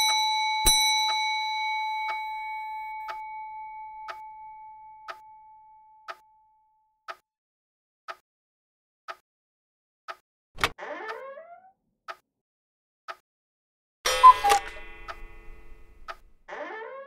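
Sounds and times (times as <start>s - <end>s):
bell ringing: 0.0s - 5.1s, 14.1s - 16.1s
clock ticking: 14.1s - 16.3s.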